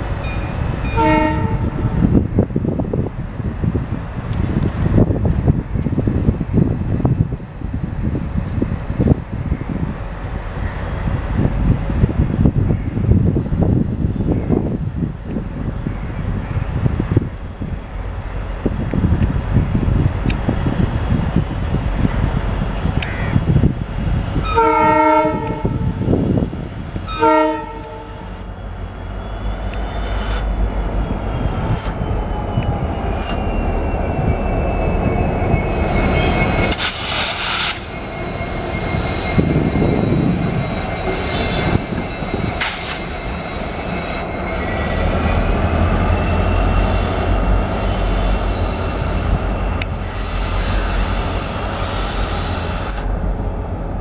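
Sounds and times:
locomotive horn blasts: 0.9 - 1.8, 24.5 - 25.8, 27.1 - 28.2
high squealing tones: 28.0 - 53.2.

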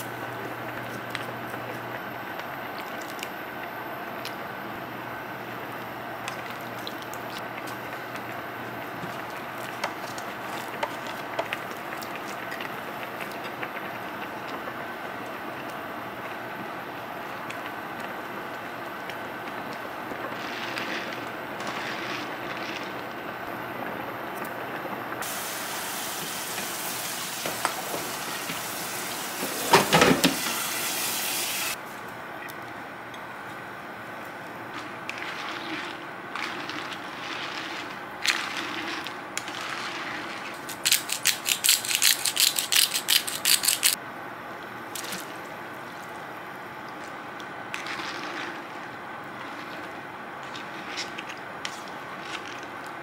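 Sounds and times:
broth simmering with hiss: 25.1 - 31.8
kitchen tap running: 25.2 - 31.8.

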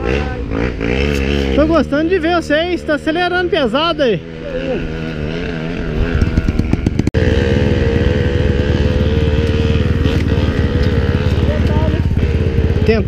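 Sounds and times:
dirt bike engine running: 0.0 - 13.0.

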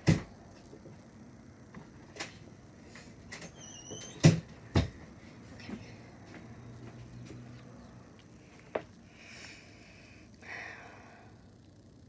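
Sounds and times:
knocks and thumps: 4.2 - 5.9.

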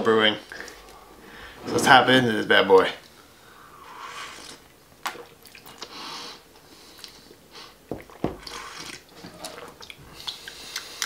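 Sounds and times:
coffee slurping: 8.0 - 11.0.

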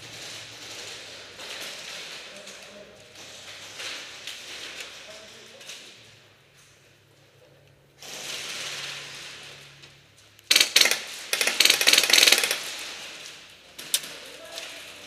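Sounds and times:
airsoft rifle firing bursts: 10.5 - 13.0.

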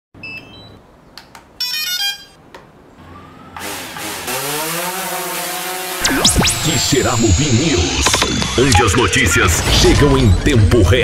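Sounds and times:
whoosh with rising drone: 5.9 - 9.0
electronic beeps and clicks: 6.0 - 9.1
chirping digital blips: 6.0 - 9.4.

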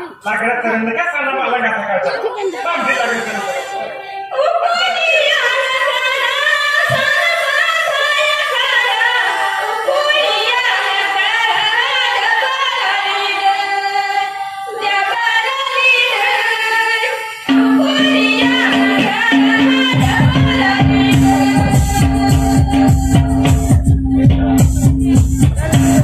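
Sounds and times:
high voices singing: 2.0 - 26.0
music: 2.4 - 26.0.

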